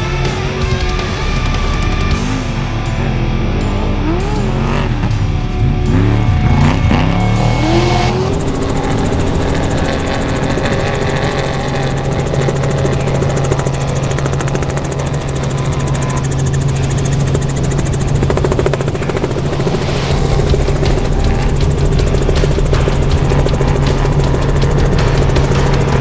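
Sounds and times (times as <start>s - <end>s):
loud engine drone: 0.0s - 26.0s.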